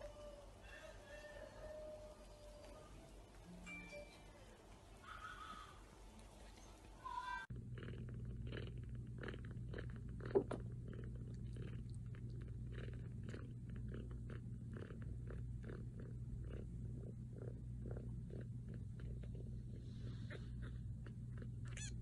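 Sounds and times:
kitten squeak: 21.7s - 22.0s.

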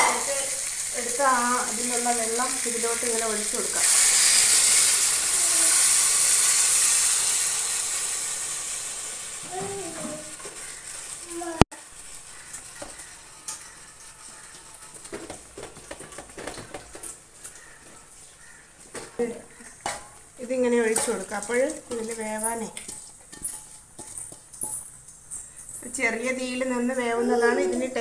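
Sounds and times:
chicken and potatoes sizzling in pan: 0.0s - 16.7s, 19.2s - 25.0s
tongs clicking and scraping pan: 12.3s - 17.8s, 18.9s - 26.9s.

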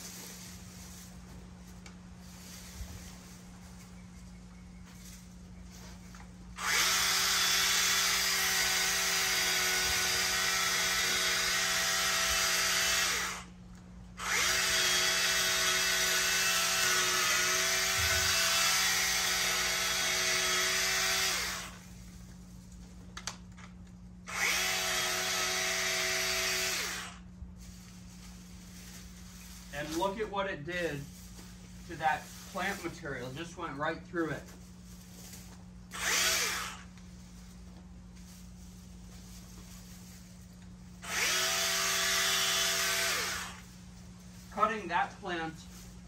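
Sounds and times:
electric mini chainsaw cutting stems: 6.6s - 13.6s, 14.2s - 22.0s, 24.2s - 27.3s, 31.9s - 32.8s, 35.3s - 37.0s, 41.0s - 43.8s.

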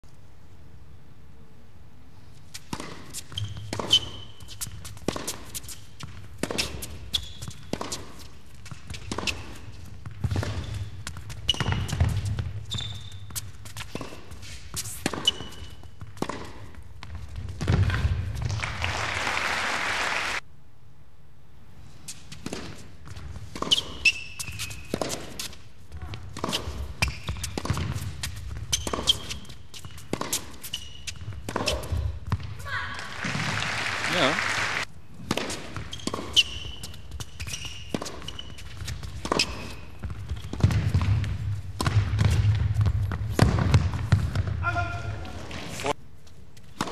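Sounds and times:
tennis ball struck by rackets: 2.6s - 12.6s, 13.9s - 16.8s, 26.2s - 32.6s, 35.2s - 36.6s, 37.5s - 44.6s
ball bouncing on court: 2.6s - 18.8s, 22.4s - 34.3s, 35.2s - 45.8s
applause: 18.4s - 20.4s, 33.0s - 34.9s.

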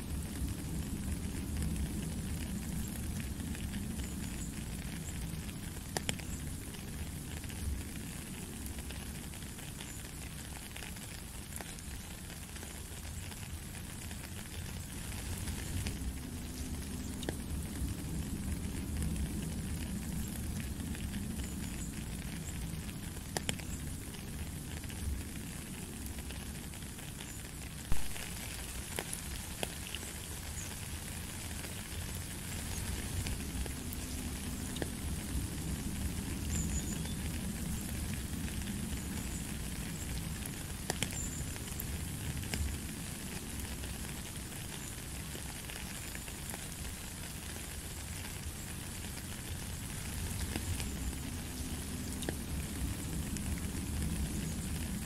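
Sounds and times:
rain on puddles and gravel: 0.0s - 55.0s.

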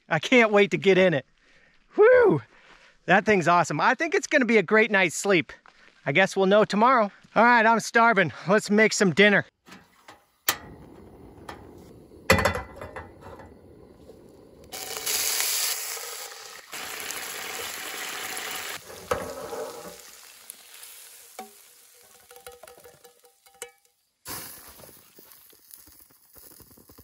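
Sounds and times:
cooking utensil clicks and scrapes: 9.7s - 13.6s, 18.8s - 20.0s, 21.4s - 23.9s
food sizzling in a pan: 13.2s - 23.7s, 24.3s - 27.0s.

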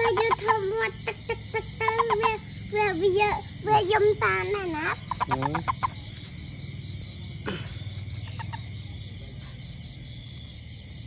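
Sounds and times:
toad chirping rapidly: 0.0s - 8.9s
trilling insect chorus: 0.0s - 11.0s.

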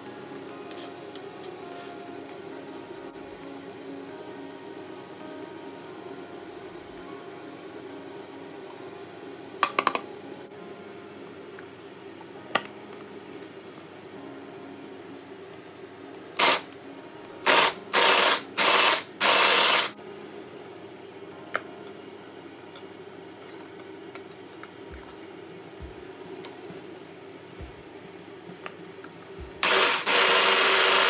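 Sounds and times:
hand blender chopping: 29.6s - 31.0s.

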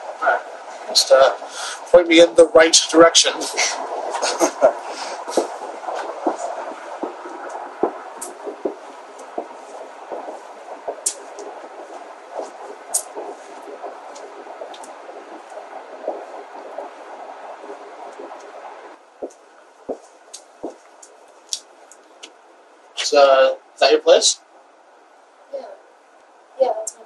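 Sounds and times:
steady background noise: 0.0s - 27.0s
footsteps on concrete: 4.4s - 16.9s, 19.2s - 21.6s.

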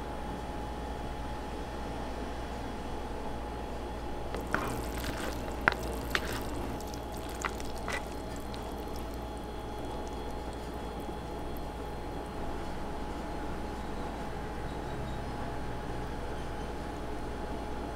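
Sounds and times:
chopsticks wet clicks in noodles: 4.4s - 11.8s.

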